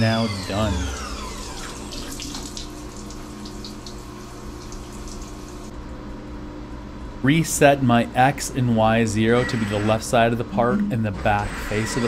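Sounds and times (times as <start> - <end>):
machine steady hum: 0.0 - 12.0
coolant pouring and splashing: 1.0 - 5.7.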